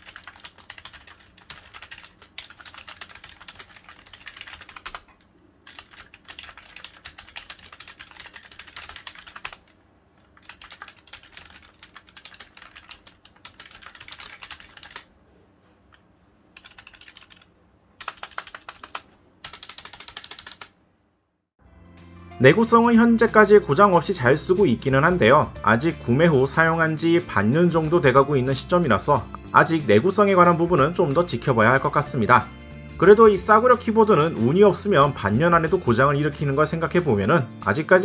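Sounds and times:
keyboard typing: 0.0s - 15.1s, 16.6s - 20.8s.

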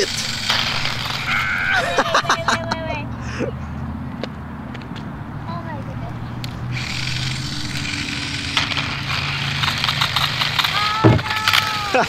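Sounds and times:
small electric motor whirring: 0.0s - 2.6s, 5.5s - 12.0s
plastic wheels rattling on concrete: 6.7s - 12.0s
thump: 11.0s - 11.3s.

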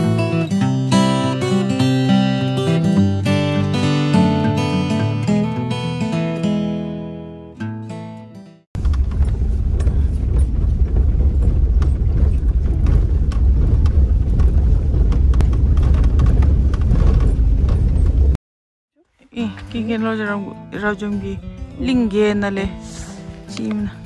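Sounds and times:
car interior road rumble: 8.8s - 18.4s
clicks and knocks over bumps: 8.8s - 18.4s.

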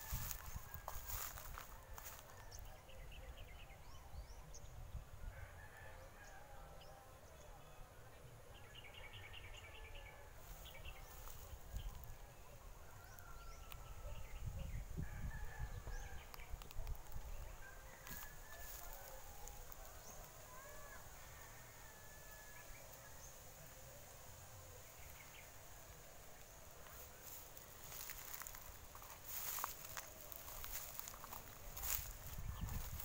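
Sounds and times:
rooster crowing: 17.8s - 22.7s
small birds chirping and trilling: 26.5s - 33.0s.

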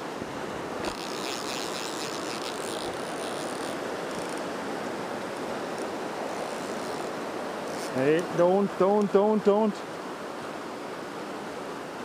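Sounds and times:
river water rushing over rocks: 0.0s - 12.0s
fishing reel drag ratcheting: 0.8s - 4.5s, 6.4s - 8.0s.

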